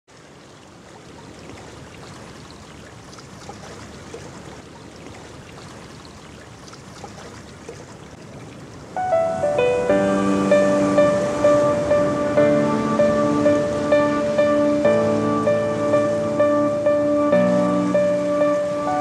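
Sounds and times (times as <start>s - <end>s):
ocean surf washing onto beach: 8.1s - 19.0s.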